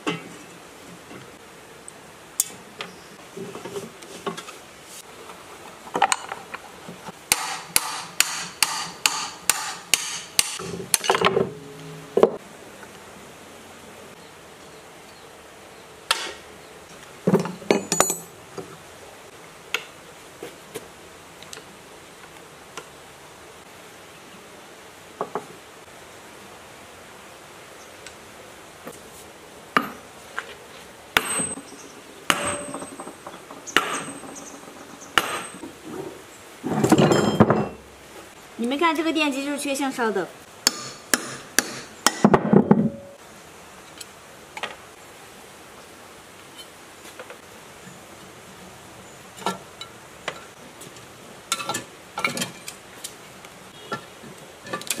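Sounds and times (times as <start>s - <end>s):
hand tools tapping on metal: 7.3s - 12.4s, 17.3s - 18.4s, 31.2s - 35.7s, 40.6s - 43.2s, 49.4s - 53.2s
sledgehammer striking metal: 31.2s - 31.7s, 32.3s - 34.6s, 35.2s - 35.6s.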